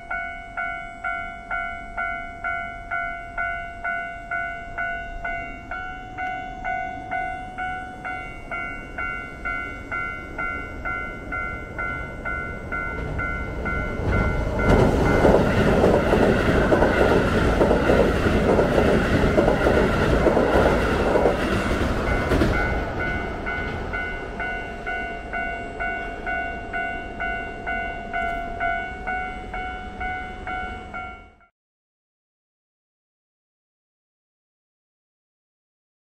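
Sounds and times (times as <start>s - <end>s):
level crossing bell ringing: 0.1s - 17.3s, 22.1s - 31.4s
train rumbling across bridge: 2.0s - 31.1s.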